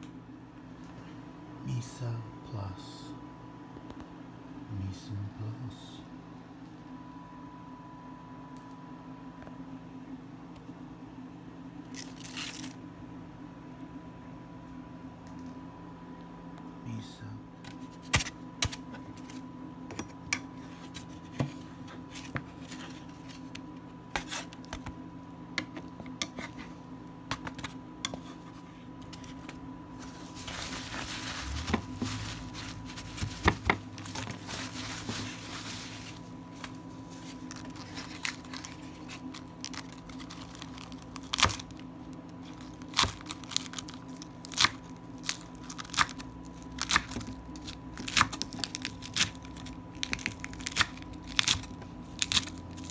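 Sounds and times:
faint steady hum: 0.0s - 52.9s
paper towel tearing and crumpling: 30.0s - 41.8s.

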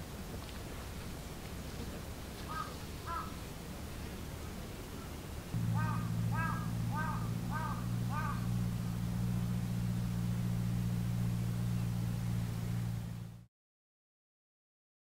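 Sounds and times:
crow cawing: 2.5s - 3.4s, 5.6s - 8.6s
low motor hum: 5.4s - 13.5s.

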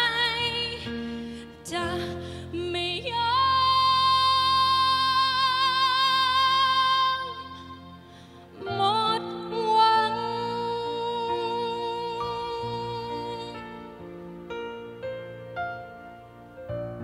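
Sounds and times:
woman singing: 0.0s - 14.1s.

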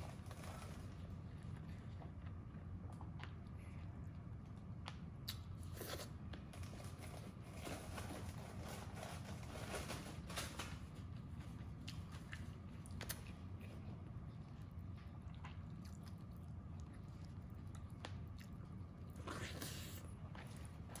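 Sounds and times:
steady low hum: 0.0s - 21.0s
close chewing with mouth clicks: 11.8s - 21.0s.

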